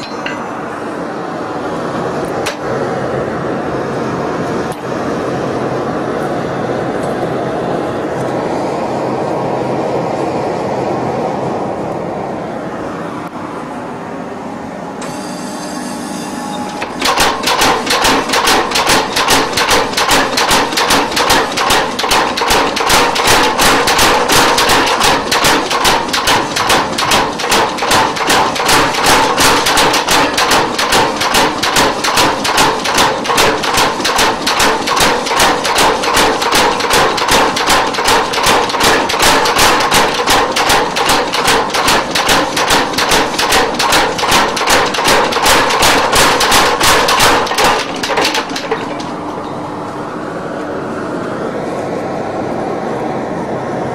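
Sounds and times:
steady rushing noise: 0.6 - 14.4
power hammer pounding iron: 16.7 - 49.6.

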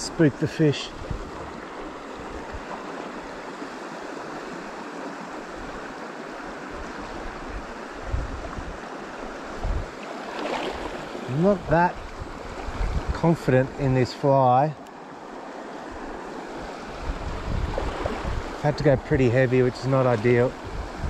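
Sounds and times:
stream water rushing: 0.0 - 21.0
wind buffeting microphone: 0.8 - 2.8, 6.8 - 8.8, 9.4 - 10.0, 10.6 - 13.9, 16.7 - 21.0.

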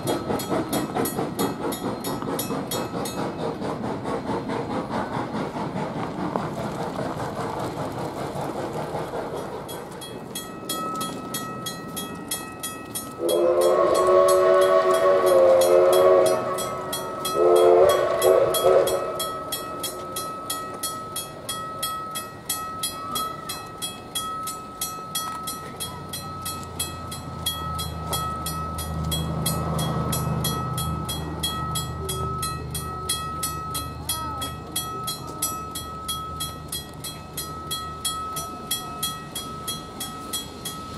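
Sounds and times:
railroad crossing bell ringing: 0.0 - 3.5, 9.6 - 40.9
low rumble of locomotive: 0.0 - 40.9
steam locomotive whistle: 13.2 - 19.6.

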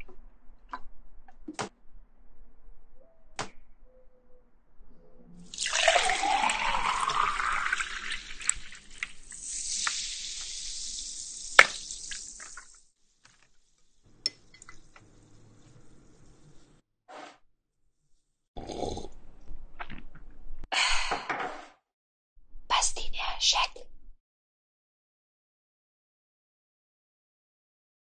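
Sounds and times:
high fizzing hiss: 5.5 - 12.8
soda water pouring into glass: 5.5 - 12.8
ice cubes clinking in glass: 5.6 - 9.1.

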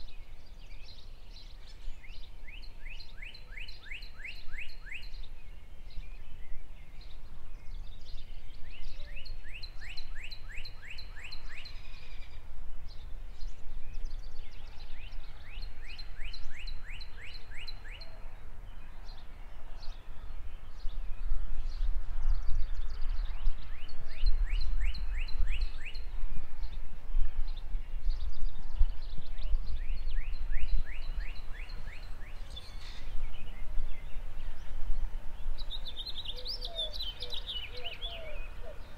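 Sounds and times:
bird repeating song phrase: 35.7 - 38.9.

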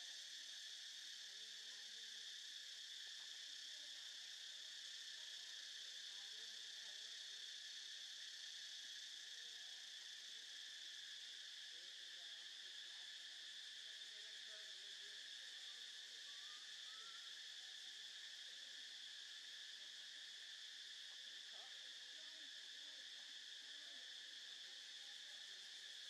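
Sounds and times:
insects chirring: 0.0 - 26.0.

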